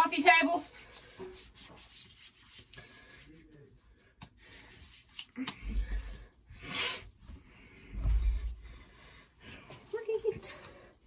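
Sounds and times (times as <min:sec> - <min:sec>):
hands rubbing lotion on skin: 0:00.0 - 0:06.3.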